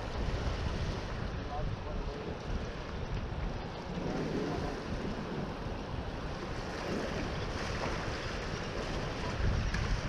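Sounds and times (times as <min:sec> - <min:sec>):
wind buffeting microphone: 0:00.0 - 0:10.0
waves splashing on rocks: 0:02.4 - 0:10.0.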